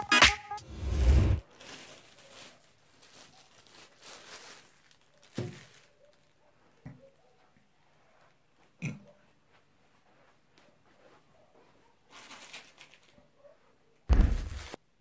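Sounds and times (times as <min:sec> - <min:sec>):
hip-hop music: 0:00.0 - 0:01.4
box thump on table: 0:14.1 - 0:14.6.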